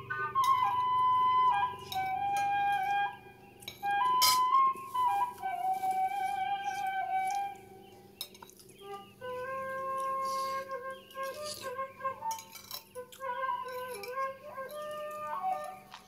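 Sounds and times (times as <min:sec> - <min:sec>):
flute melody music: 0:00.0 - 0:16.0
metal spoon clinking on plate: 0:03.6 - 0:04.5, 0:08.2 - 0:08.7, 0:12.3 - 0:14.8.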